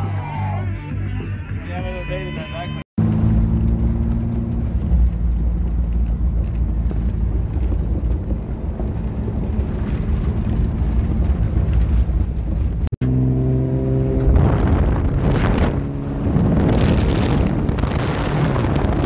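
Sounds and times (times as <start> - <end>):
tyres rumbling on gravel: 3.0 - 13.0, 14.1 - 19.0
car engine running: 3.0 - 19.0.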